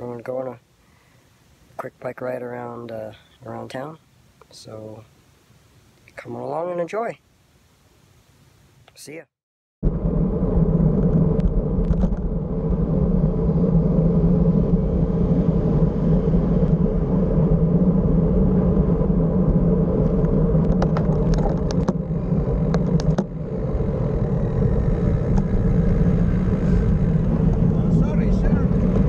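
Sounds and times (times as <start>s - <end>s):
road rumble: 9.8s - 29.0s
wind noise: 9.8s - 29.0s.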